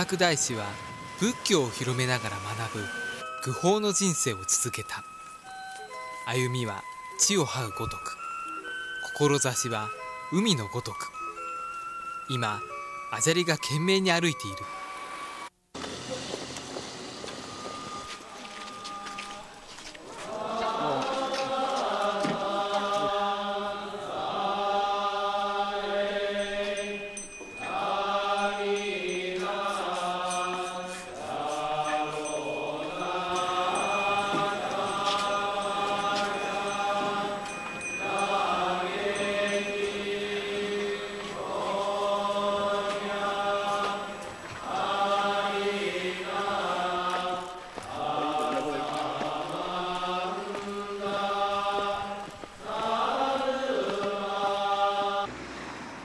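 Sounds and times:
voices chanting in unison: 0.0 - 3.8, 19.4 - 55.3.

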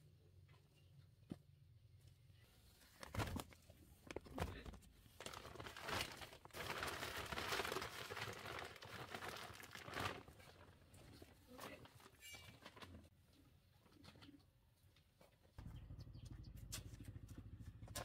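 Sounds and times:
plastic sack rustling: 5.1 - 13.1.

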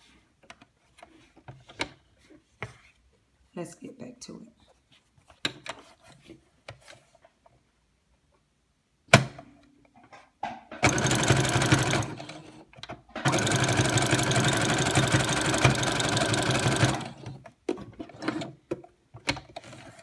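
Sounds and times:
sewing machine stitching: 10.8 - 12.6, 13.2 - 17.4.

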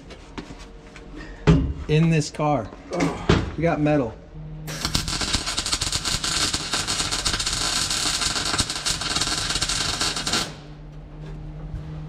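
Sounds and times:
welder arc crackling: 4.7 - 10.8.

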